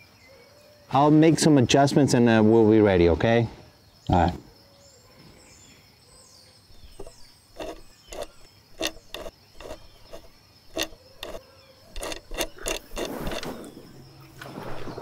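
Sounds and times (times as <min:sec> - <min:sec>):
sliding rub: 0:06.7 - 0:13.8.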